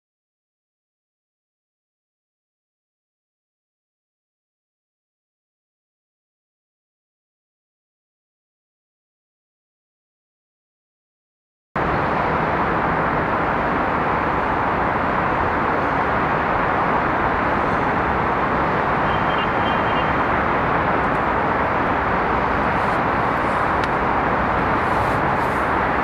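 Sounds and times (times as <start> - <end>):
city traffic hum: 11.8 - 26.0.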